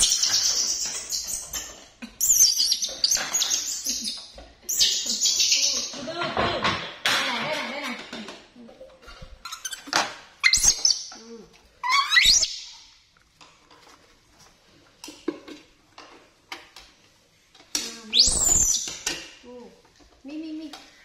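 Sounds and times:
monkey squealing: 9.5s - 11.1s, 11.8s - 12.7s.

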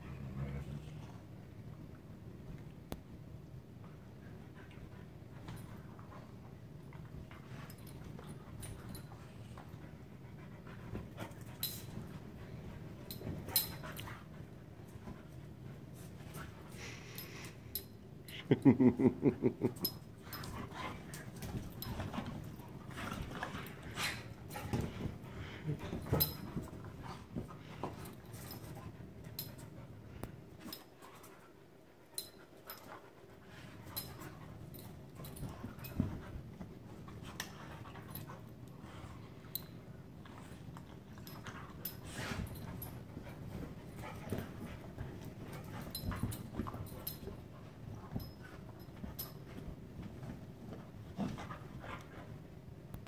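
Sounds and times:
dogs scuffling on couch: 20.4s - 29.2s.

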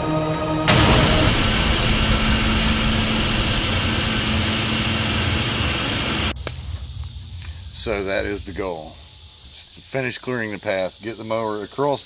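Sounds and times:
riding lawn mower engine running: 0.7s - 6.4s.

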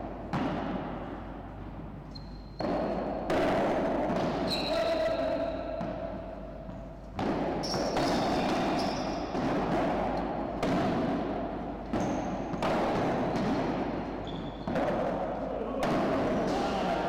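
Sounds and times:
padel ball knocks: 0.3s - 1.1s, 7.1s - 16.6s.

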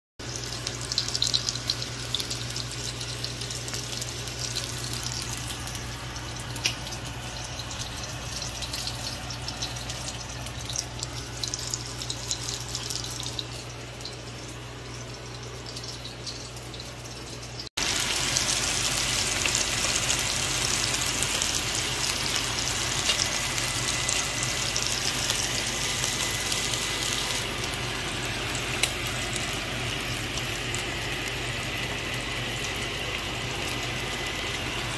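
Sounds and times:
food sizzling in oil: 0.2s - 34.9s.

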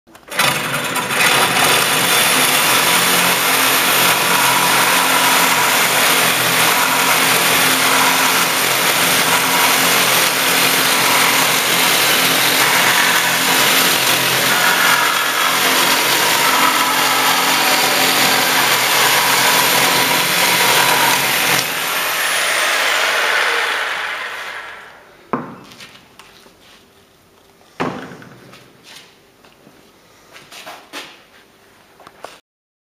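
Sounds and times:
reciprocating saw cutting clay block: 0.3s - 25.0s.

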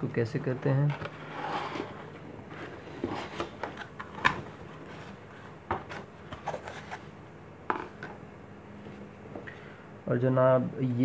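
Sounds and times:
cardboard rubbing and scraping: 1.1s - 3.6s.

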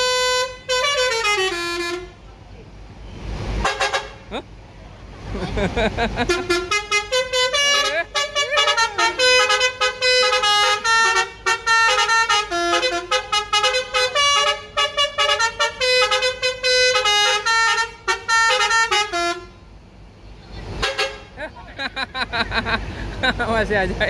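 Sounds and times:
musical air horn playing tune: 0.0s - 2.2s, 3.6s - 4.3s, 6.3s - 19.6s, 20.8s - 21.3s.

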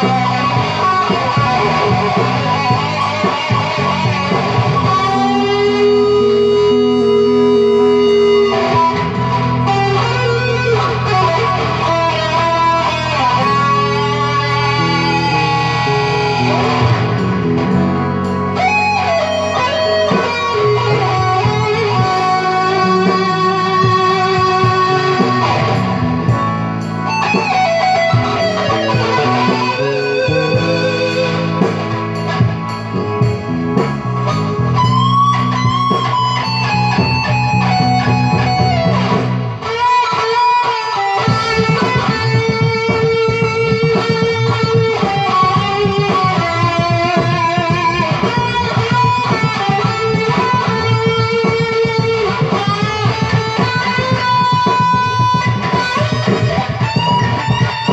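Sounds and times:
chordal and bass accompaniment: 0.0s - 39.6s
electric guitar lead: 0.0s - 57.9s.

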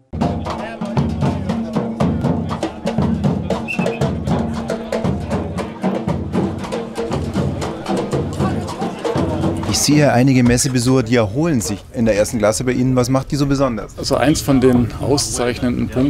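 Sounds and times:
percussion group drumming: 0.1s - 11.9s.

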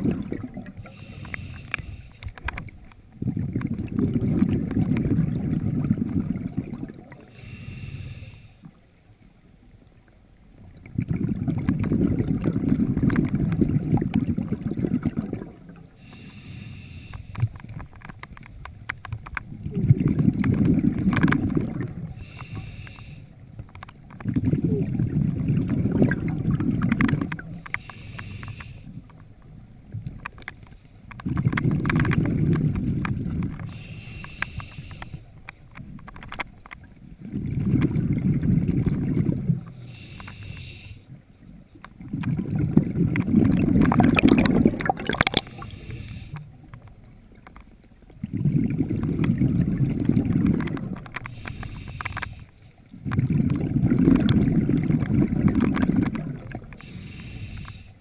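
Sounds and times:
exhaled bubbles burbling: 0.0s - 1.0s, 3.1s - 7.3s, 10.6s - 15.9s, 19.4s - 22.2s, 24.0s - 27.6s, 31.2s - 33.6s, 37.1s - 39.8s, 42.0s - 45.8s, 48.1s - 51.3s, 52.9s - 56.8s
diver breathing underwater: 0.0s - 2.5s, 7.2s - 8.8s, 14.0s - 17.6s, 20.0s - 23.5s, 27.2s - 29.1s, 33.5s - 35.4s, 37.4s - 41.2s, 43.1s - 46.7s, 48.4s - 58.0s
faint hiss: 0.8s - 2.4s, 7.2s - 9.0s, 15.8s - 17.6s, 22.0s - 23.6s, 27.5s - 29.4s, 33.6s - 35.6s, 39.6s - 41.6s, 45.4s - 47.0s, 56.6s - 58.0s.

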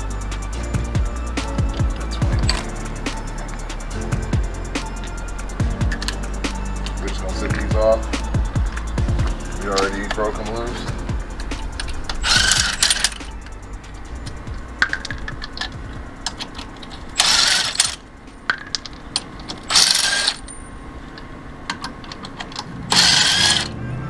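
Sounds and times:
impact wrench bursts: 8.6s - 20.6s, 22.5s - 23.7s.

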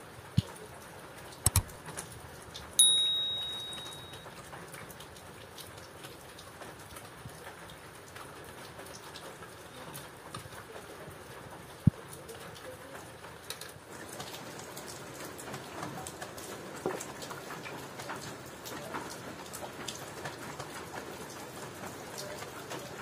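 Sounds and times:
steady rain falling: 0.0s - 23.0s
sharp ringing clink: 2.8s - 4.3s.

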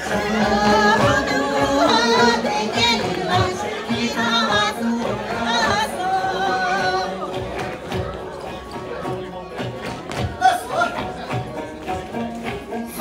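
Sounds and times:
person singing with vibrato: 0.0s - 7.6s
pitched musical accompaniment: 0.0s - 13.0s.

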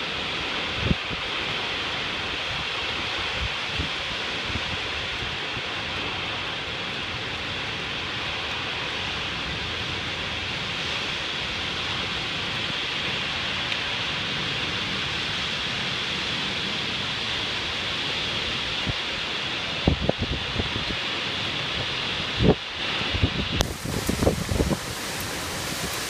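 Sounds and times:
heavy rain hissing: 0.0s - 26.0s
wind gusts on microphone: 0.3s - 6.2s, 17.5s - 26.0s.

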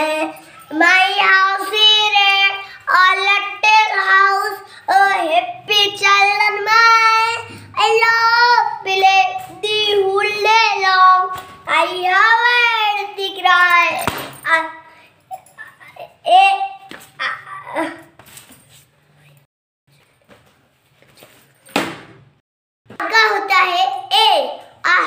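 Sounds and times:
boy singing unaccompanied: 0.0s - 14.7s.

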